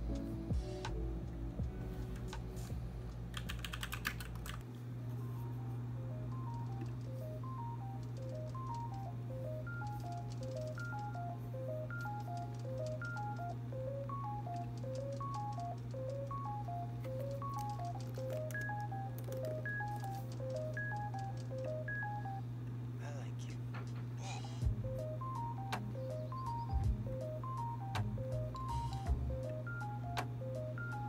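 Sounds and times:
soft background music: 0.0s - 23.5s, 24.6s - 31.0s
steady low hum: 0.0s - 31.0s
mechanical keyboard typing: 3.3s - 4.6s, 6.3s - 22.0s.

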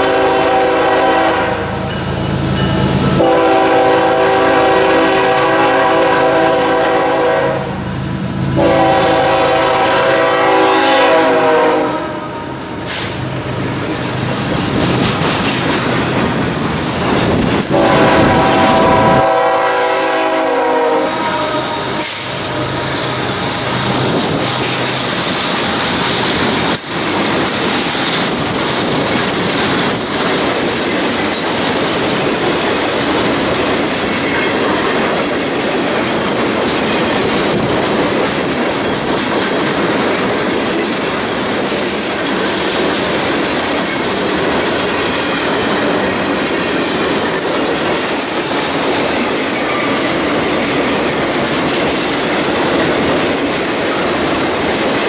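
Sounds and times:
diesel locomotive engine: 0.0s - 55.0s
train wheels rumbling on rails: 0.0s - 55.0s.

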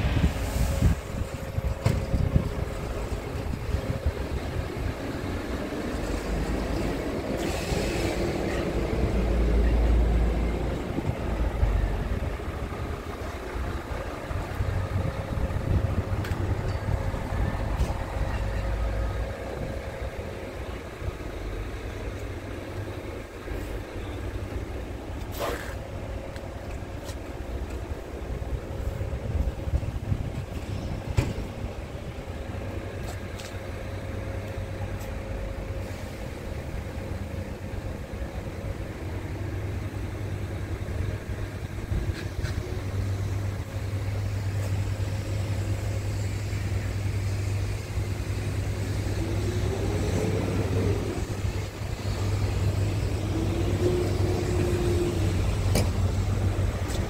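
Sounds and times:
wind buffeting microphone: 0.0s - 6.4s, 10.6s - 18.4s, 28.3s - 33.0s
vehicle rumble: 0.0s - 57.0s.

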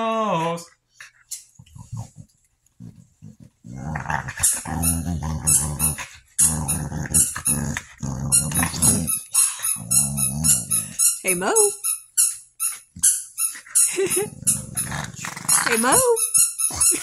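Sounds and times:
dog growling: 1.6s - 11.2s, 13.9s - 17.0s.

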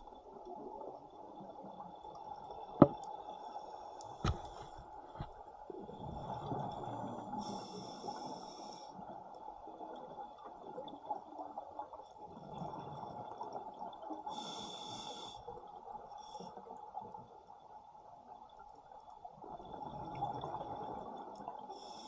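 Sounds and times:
regulator inhalation hiss: 14.4s - 15.4s.

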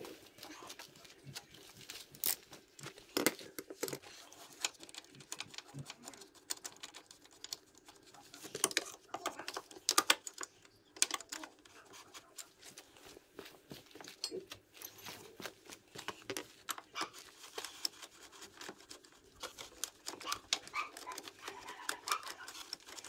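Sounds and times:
rustling: 0.0s - 23.0s
small hard objects clicking and tapping: 2.2s - 12.4s.

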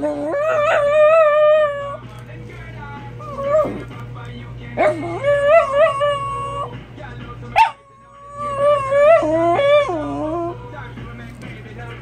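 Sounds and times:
dogs howling whines: 0.0s - 2.0s, 3.2s - 3.9s, 4.8s - 6.8s, 7.6s - 10.8s
dog yelp: 7.6s - 10.5s.

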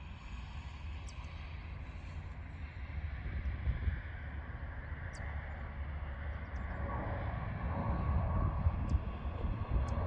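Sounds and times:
jet engines rumbling: 0.0s - 10.0s
wind buffeting microphone: 2.9s - 4.6s, 6.2s - 10.0s.

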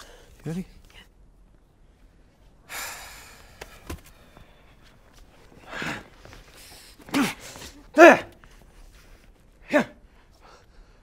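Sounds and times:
person breathing sharply and gasping: 2.6s - 7.9s.

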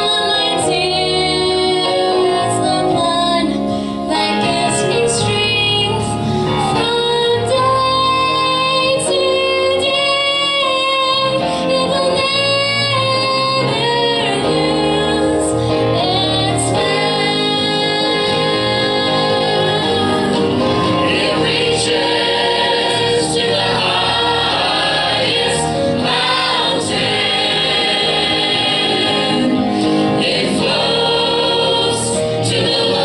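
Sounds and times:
choir singing gospel: 0.0s - 5.2s, 12.0s - 33.0s
instrumental accompaniment: 0.0s - 33.0s.

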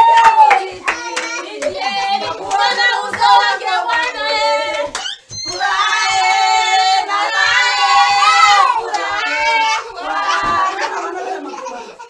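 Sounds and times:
hand claps: 0.0s - 1.8s, 4.7s - 5.2s
women and children singing: 0.0s - 12.0s.

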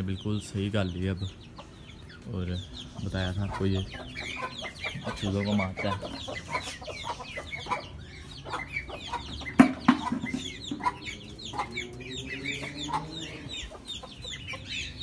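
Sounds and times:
chickens clucking: 0.0s - 15.0s
high falling chirps of birds: 0.0s - 15.0s
sharp knocks: 9.5s - 10.8s.

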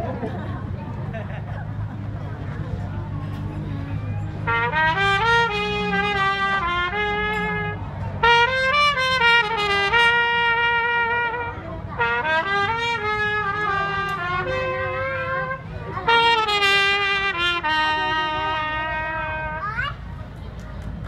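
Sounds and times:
solo trumpet melody: 4.4s - 19.6s.

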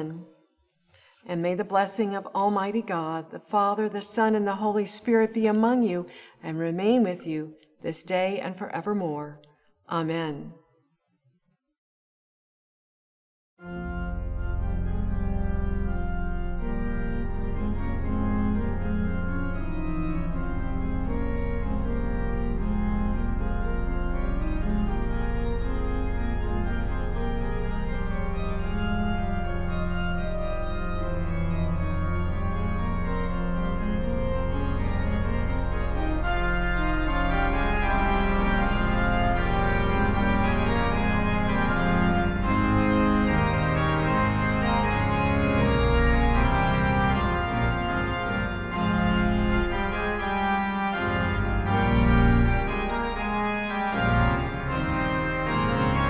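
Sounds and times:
deep organ pedal bass: 13.6s - 56.0s
organ chords: 13.6s - 56.0s.

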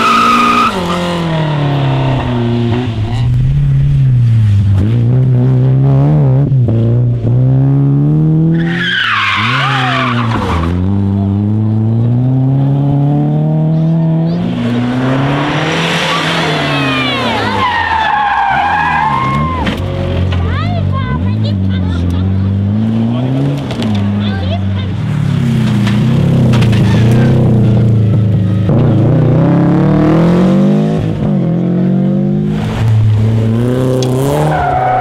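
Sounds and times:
rally car engines revving: 0.0s - 35.0s.

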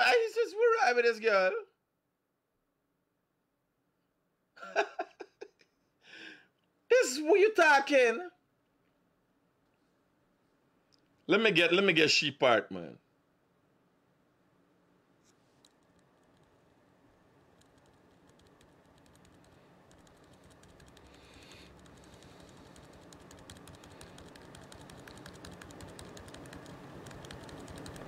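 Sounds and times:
faint low hum: 0.0s - 28.0s
laptop keyboard typing: 15.6s - 16.8s, 17.4s - 28.0s.

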